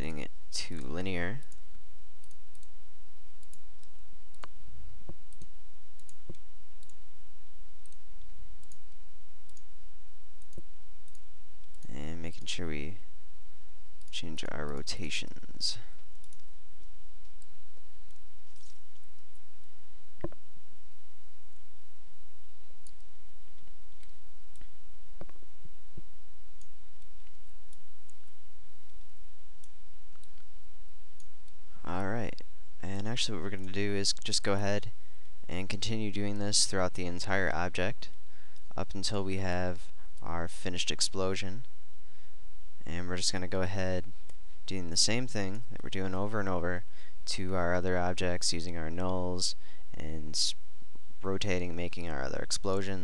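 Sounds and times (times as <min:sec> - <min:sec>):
faint steady tone: 0:00.0 - 0:53.0
low hum: 0:00.0 - 0:53.0
computer mouse clicking: 0:02.2 - 0:02.7
computer mouse clicks: 0:02.2 - 0:02.7, 0:03.4 - 0:07.0.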